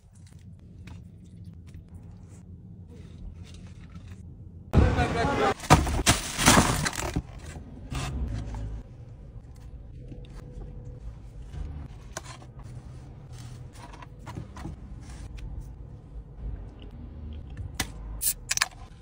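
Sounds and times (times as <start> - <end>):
low rumble: 6.6 - 18.2.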